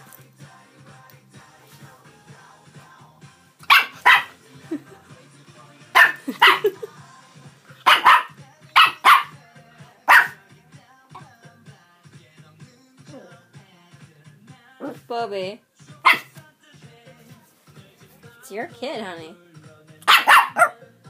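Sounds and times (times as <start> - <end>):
puppy barking: 3.6 - 4.4, 5.9 - 6.8, 7.8 - 9.4, 10.1 - 10.4, 16.0 - 16.3, 20.0 - 20.8.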